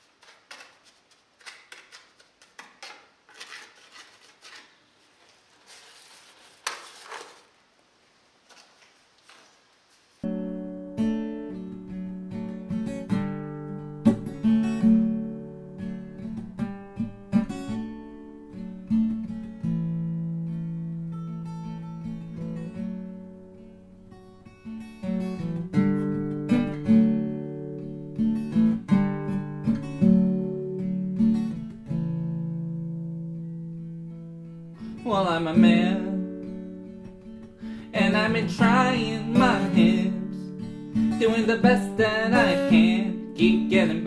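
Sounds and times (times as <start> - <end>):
acoustic guitar strumming chords: 10.3 - 44.0.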